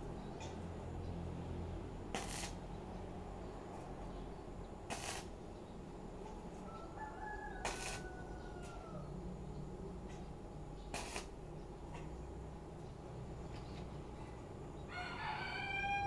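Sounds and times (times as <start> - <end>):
arc welder crackling: 2.1 - 2.8, 4.8 - 5.4, 7.6 - 8.8, 10.9 - 11.5.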